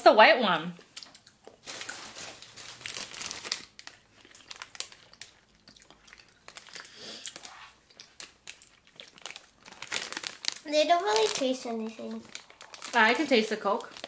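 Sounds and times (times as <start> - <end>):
plastic bag crinkling: 1.5 - 14.0.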